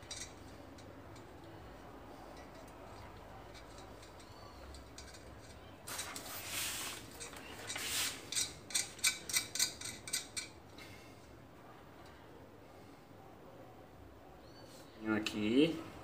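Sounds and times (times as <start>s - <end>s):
scraping rustle of small parts: 2.3s - 10.5s.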